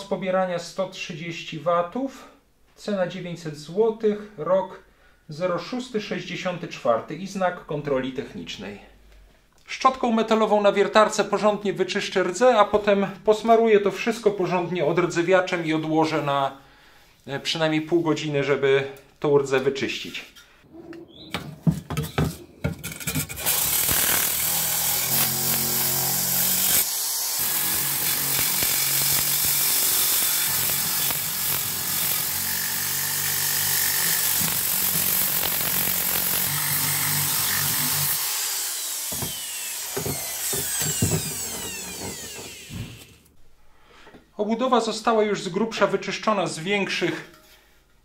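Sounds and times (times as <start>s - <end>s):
handling knocks: 21.3s - 23.4s
drill motor hum: 23.4s - 43.3s.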